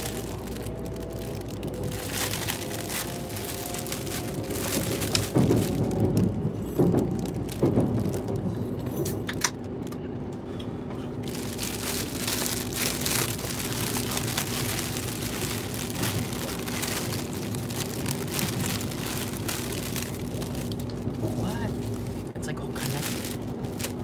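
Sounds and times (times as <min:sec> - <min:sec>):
plastic bags crinkling: 0:00.0 - 0:08.5, 0:11.2 - 0:24.0
train rumble and hum: 0:00.0 - 0:24.0.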